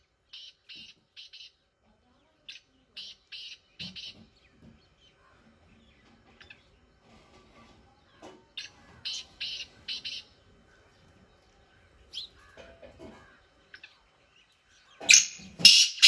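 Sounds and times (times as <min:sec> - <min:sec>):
francolin calling harsh notes: 0:15.1 - 0:16.0.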